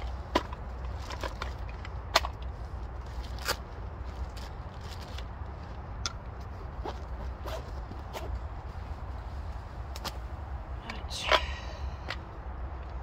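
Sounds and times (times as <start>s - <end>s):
low steady rumble: 0.0s - 13.0s.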